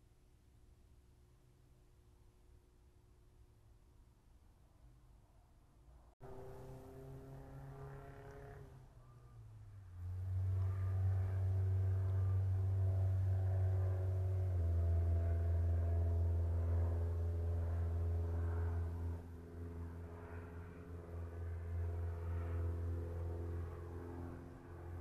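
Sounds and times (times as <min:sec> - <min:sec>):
low mechanical drone with tones: 0:05.8 - 0:25.0.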